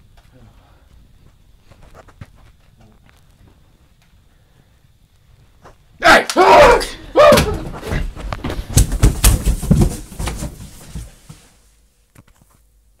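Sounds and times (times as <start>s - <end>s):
person falling down stairs: 6.4s - 11.6s.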